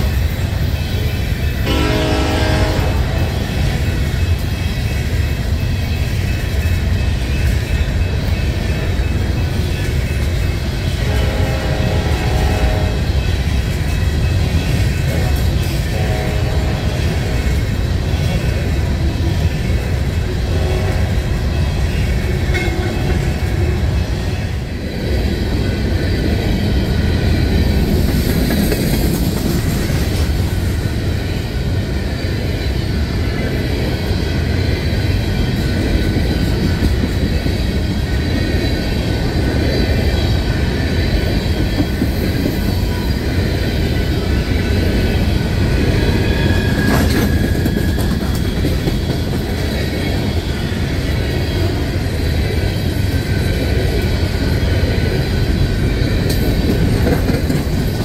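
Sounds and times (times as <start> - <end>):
high wheel squeal: 44.0 - 51.2
train wheels clattering over rail joints: 46.2 - 50.4, 56.2 - 58.0.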